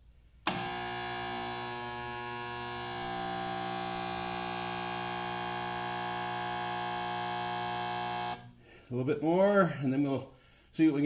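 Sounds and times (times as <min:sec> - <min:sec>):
spot welder humming: 0:00.4 - 0:08.6.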